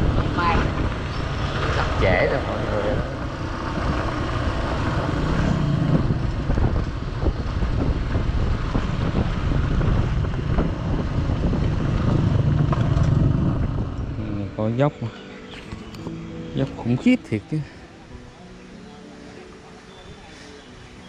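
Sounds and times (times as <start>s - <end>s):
motorcycle engine running: 0.0s - 16.7s
wind buffeting microphone: 0.0s - 16.7s.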